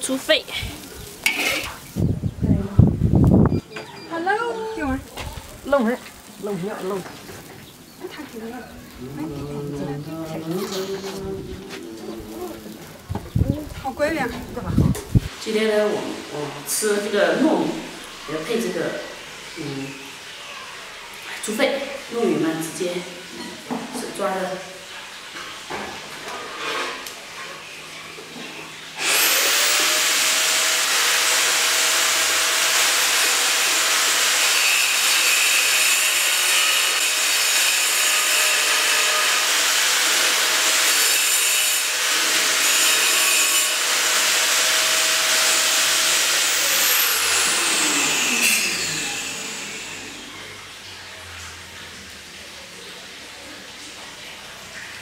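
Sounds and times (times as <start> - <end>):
power tool motor whining: 29.0 - 50.6.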